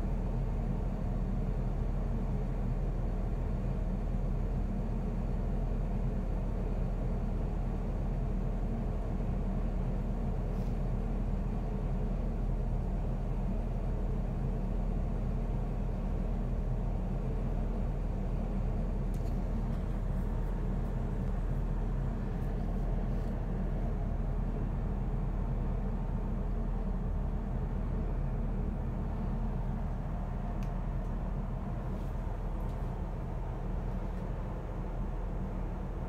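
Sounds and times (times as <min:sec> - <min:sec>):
faint light ticks: 0:19.1 - 0:19.4, 0:30.6 - 0:31.2.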